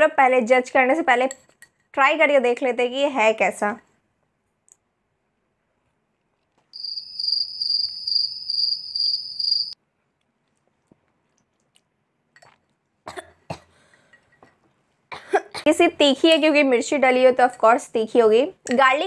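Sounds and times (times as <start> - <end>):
cricket chirping trill: 6.8 - 9.8
person coughing: 13.1 - 13.8, 15.1 - 15.7.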